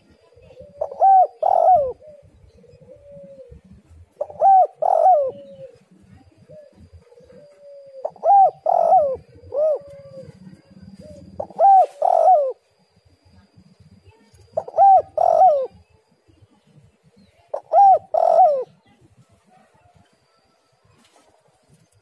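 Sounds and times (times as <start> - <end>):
dove cooing: 0.0 - 12.6, 14.4 - 15.9, 17.4 - 20.0.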